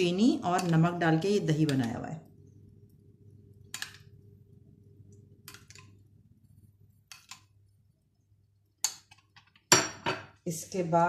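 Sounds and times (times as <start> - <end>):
metal spoon clicking against bowls: 7.1 - 7.5.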